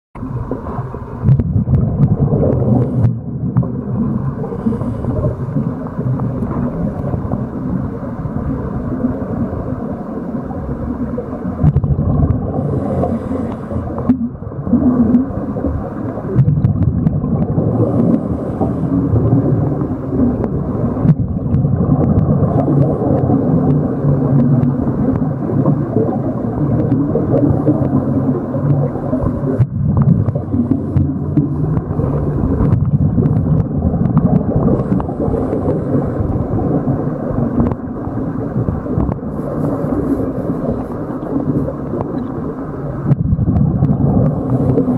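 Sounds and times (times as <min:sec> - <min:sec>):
muffled underwater water rumble: 0:00.2 - 0:44.9
faint clicks: 0:40.7 - 0:44.9.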